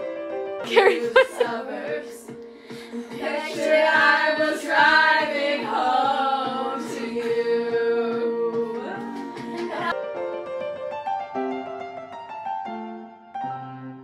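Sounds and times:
person singing: 0:00.7 - 0:09.9.

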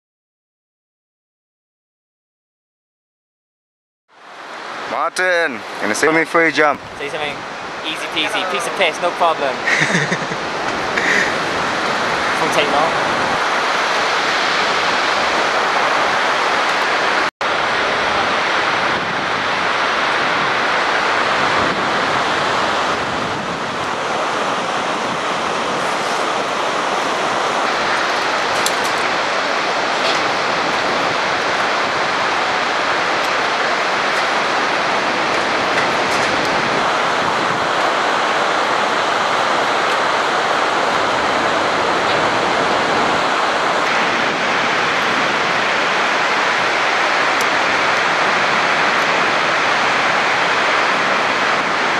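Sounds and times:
river rushing: 0:04.2 - 0:51.9.

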